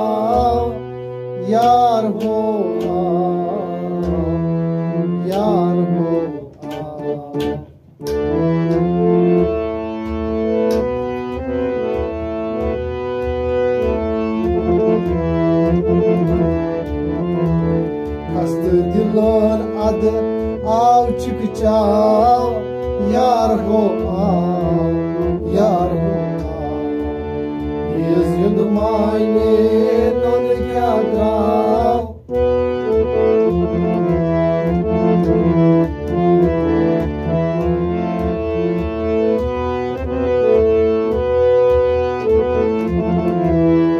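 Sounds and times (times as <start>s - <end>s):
person singing: 0.0s - 7.7s, 27.9s - 32.3s
harmonium playing held chords: 0.0s - 43.9s.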